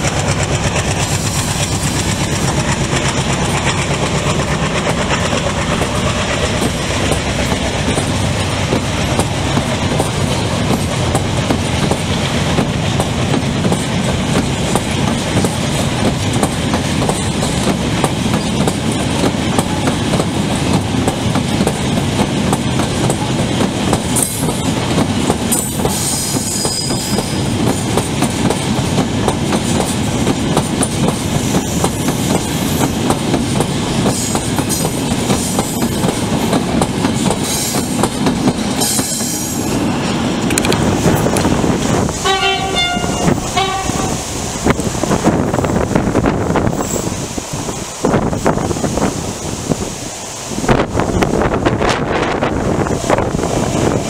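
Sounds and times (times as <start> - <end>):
train wheels clattering over rail joints: 0.0 - 49.8
high wheel squeal: 25.6 - 27.4.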